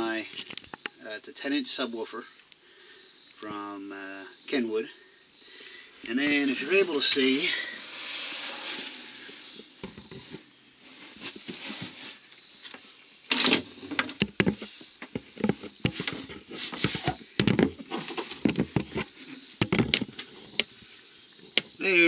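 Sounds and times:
handling knocks clicks and rustles: 0:12.7 - 0:20.7.

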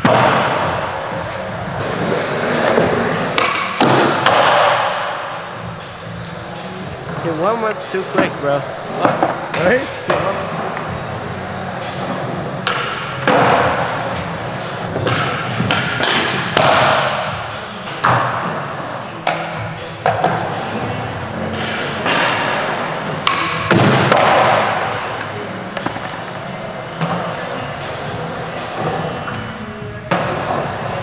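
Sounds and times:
skateboard knocks and landings: 0:00.0 - 0:05.0, 0:21.6 - 0:25.1
skateboard wheels rolling on concrete: 0:00.0 - 0:07.3, 0:08.1 - 0:31.0.

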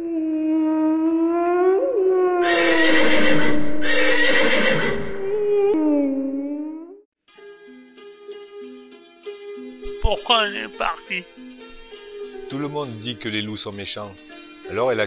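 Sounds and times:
wolf howling: 0:00.0 - 0:07.0
rough noisy cry: 0:02.4 - 0:05.2.

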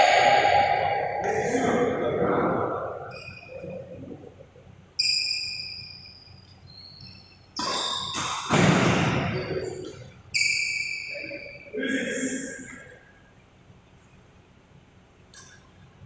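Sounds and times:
rackets hitting shuttlecock: 0:07.6 - 0:09.9.

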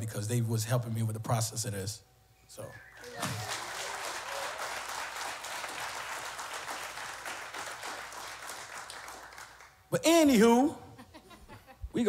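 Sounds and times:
audience applauding: 0:02.9 - 0:09.8.

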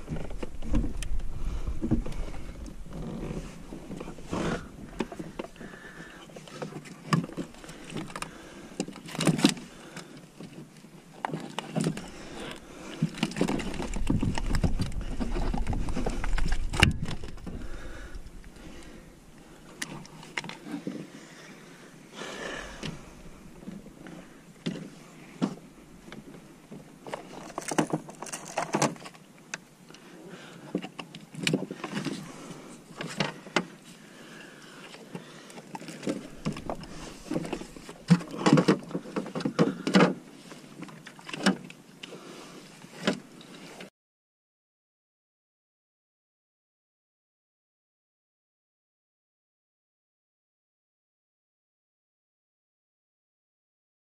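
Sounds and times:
rough rumbling noise: 0:00.0 - 0:06.5, 0:11.9 - 0:19.8.

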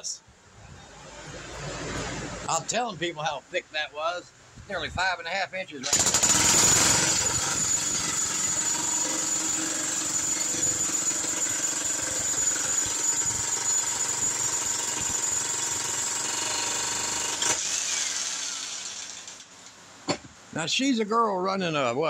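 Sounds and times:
jackhammer hammering concrete: 0:05.9 - 0:19.3.

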